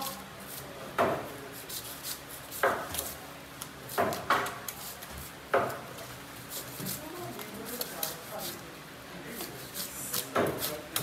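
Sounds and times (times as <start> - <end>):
knife chopping on cutting board: 1.0 - 1.3, 2.5 - 3.1, 3.9 - 4.6, 5.5 - 5.9, 9.4 - 11.0.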